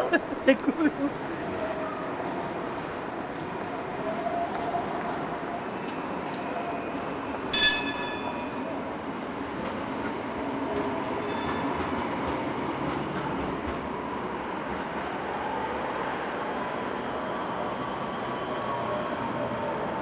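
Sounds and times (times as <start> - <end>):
city traffic rumble: 0.0 - 20.0.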